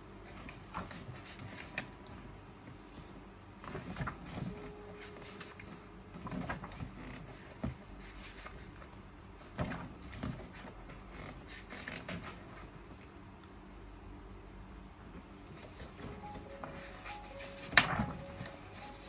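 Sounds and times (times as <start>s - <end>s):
book pages turning: 0.3s - 2.2s, 3.6s - 8.9s, 9.6s - 12.7s, 15.5s - 19.0s.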